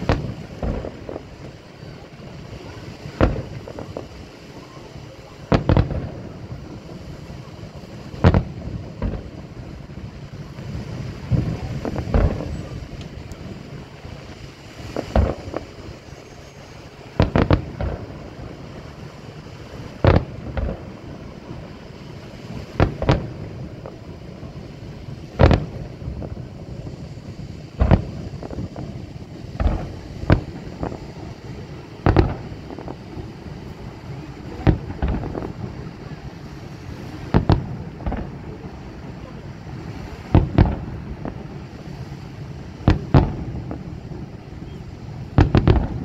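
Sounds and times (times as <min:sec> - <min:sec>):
firework shells bursting: 0:00.0 - 0:01.5, 0:02.7 - 0:04.1, 0:05.5 - 0:06.5, 0:08.2 - 0:10.0, 0:10.6 - 0:13.4, 0:14.2 - 0:21.1, 0:22.3 - 0:24.0, 0:25.4 - 0:38.6, 0:39.8 - 0:41.5, 0:42.8 - 0:44.1, 0:45.2 - 0:46.0.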